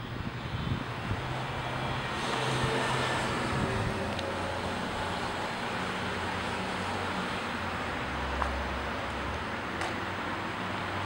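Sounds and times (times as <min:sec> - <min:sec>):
distant road traffic: 0:00.0 - 0:11.0.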